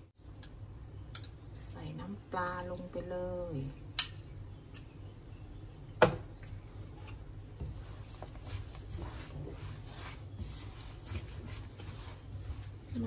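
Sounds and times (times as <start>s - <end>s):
spatula scraping in a wok: 7.6s - 13.0s.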